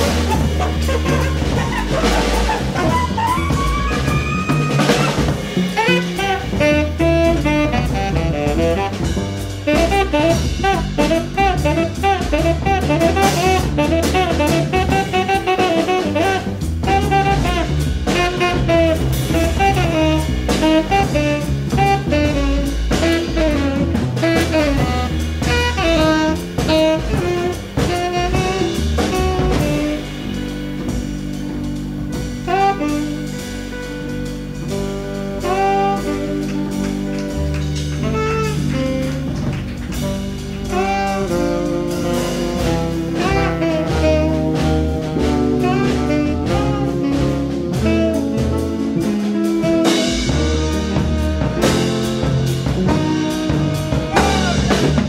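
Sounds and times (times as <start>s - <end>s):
instrumental music with drum beat: 0.0s - 55.0s.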